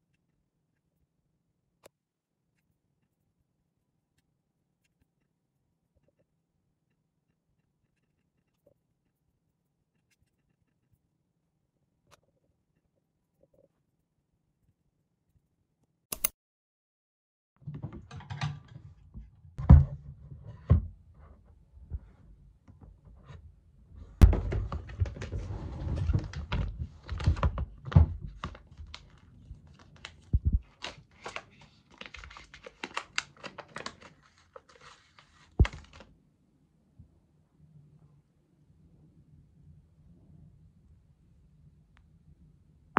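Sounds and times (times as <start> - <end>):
click: 16.1 - 16.3
plastic packet crinkling: 29.8 - 36.0.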